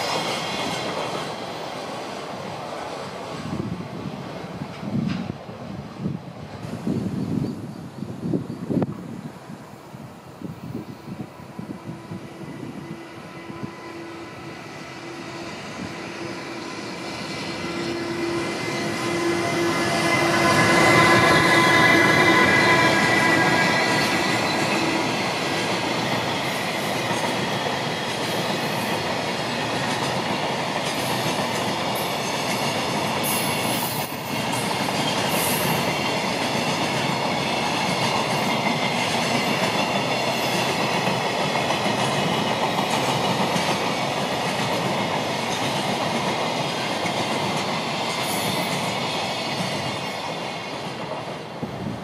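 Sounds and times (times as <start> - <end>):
freight train passing: 0.0 - 52.0.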